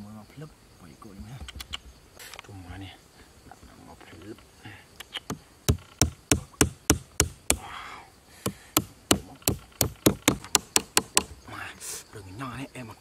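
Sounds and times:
hammer knocking nail into wood: 5.3 - 7.6, 8.4 - 11.4.

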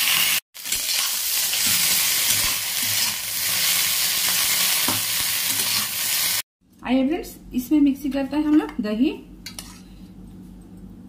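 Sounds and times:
okra sizzling in hot oil: 0.0 - 6.4.

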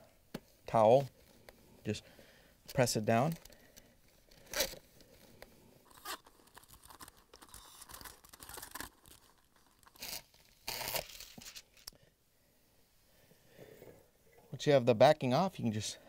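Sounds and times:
plastic film peeling and crinkling: 3.1 - 11.9.

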